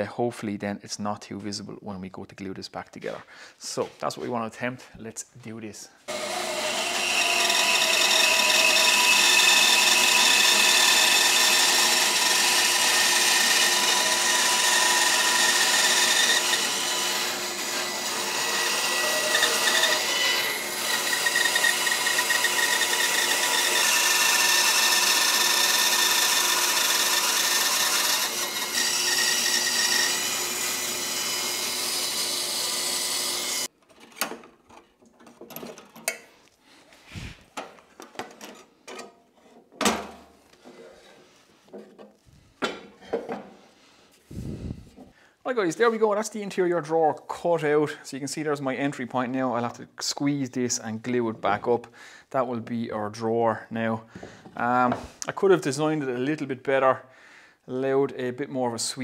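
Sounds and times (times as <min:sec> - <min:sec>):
bandsaw cutting wood: 0:06.1 - 0:33.7.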